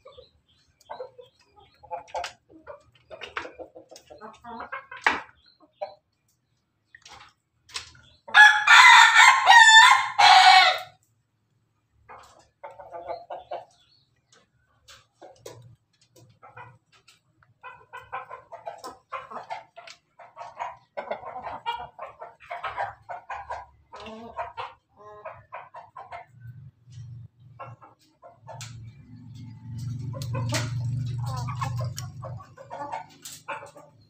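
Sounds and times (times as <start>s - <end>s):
chickens clucking: 0.0s - 34.0s
rooster crowing: 8.3s - 10.9s.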